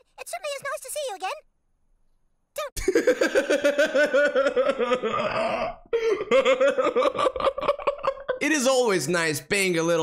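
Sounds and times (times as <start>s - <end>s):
man laughing hard: 2.8s - 8.4s.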